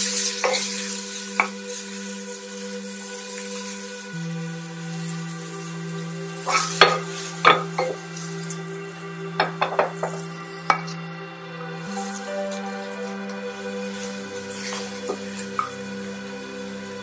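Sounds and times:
soft background music: 0.0s - 17.0s
vegetables sizzling in oil: 0.0s - 17.0s.

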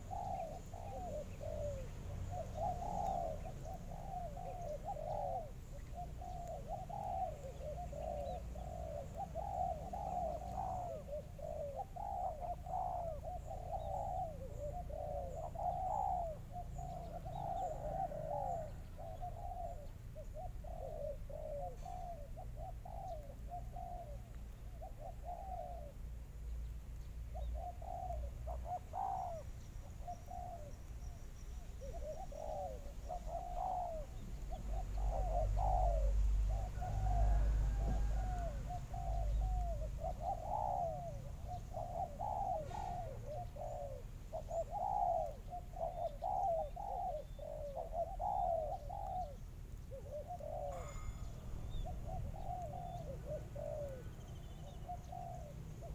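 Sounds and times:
doves cooing: 0.0s - 55.9s
steady low rumble: 50.8s - 54.9s.

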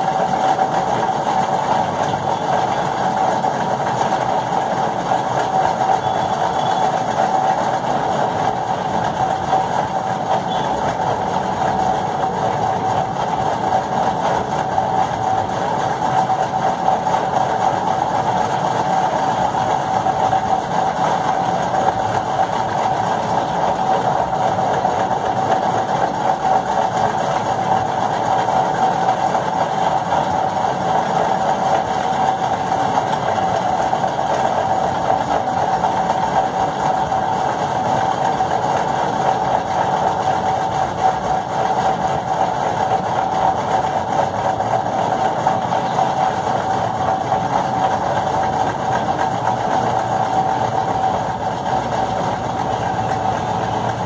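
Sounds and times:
machine drone with whine: 4.6s - 8.7s.

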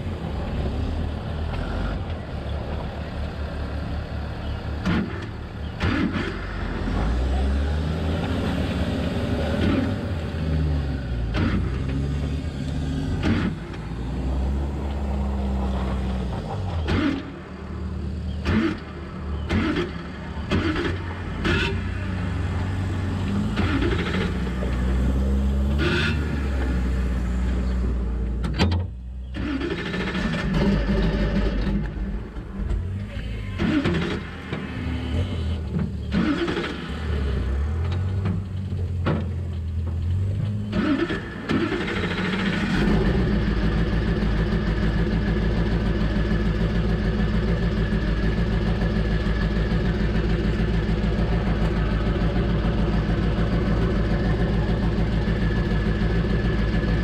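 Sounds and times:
knocks and clunks: 4.8s - 6.4s, 11.2s - 13.9s, 28.2s - 29.0s, 31.5s - 36.8s, 37.6s - 40.8s
race car engine revving: 4.8s - 28.2s, 40.3s - 57.0s.

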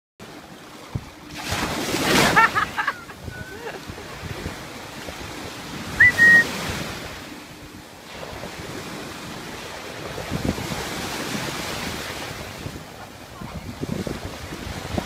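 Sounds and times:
surf washing on beach: 0.2s - 15.0s
high steady tone: 6.0s - 6.5s
wind buffeting microphone: 8.2s - 15.0s.

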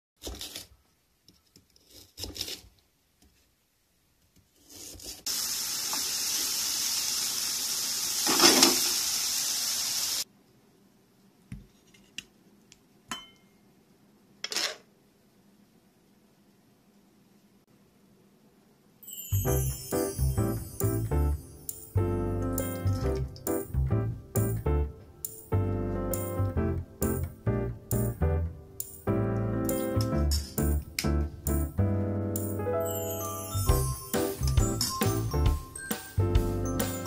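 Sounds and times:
food sizzling in a frying pan: 5.3s - 10.3s.

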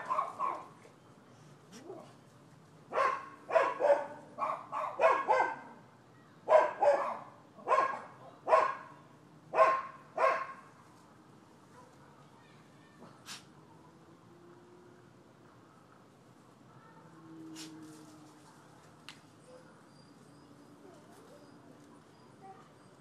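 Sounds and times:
dog barking: 0.0s - 0.7s, 2.9s - 5.8s, 6.5s - 8.9s, 9.5s - 10.7s.

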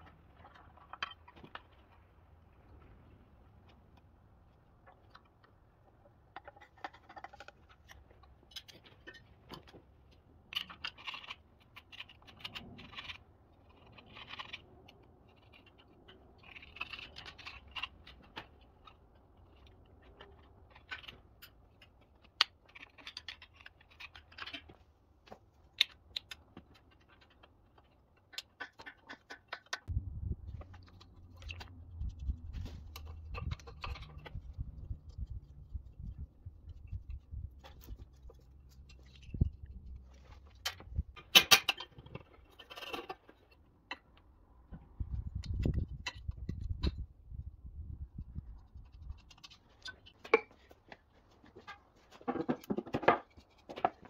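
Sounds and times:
low hum: 29.9s - 41.2s
wrench clicking and scraping on nuts: 30.8s - 44.2s.

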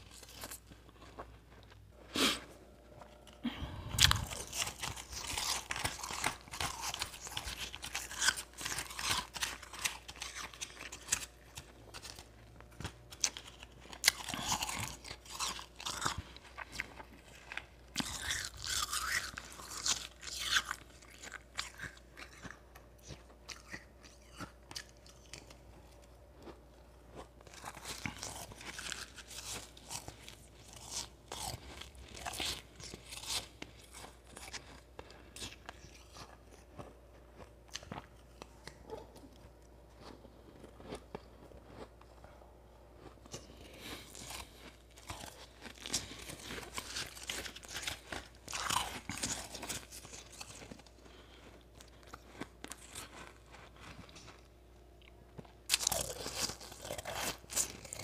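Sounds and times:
crunching and chewing ice: 0.0s - 58.0s.

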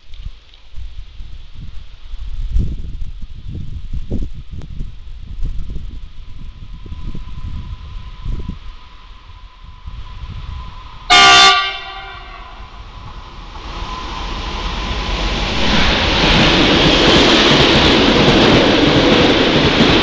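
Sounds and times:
freight train rolling past: 1.8s - 20.0s
locomotive horn blast: 11.1s - 12.8s.

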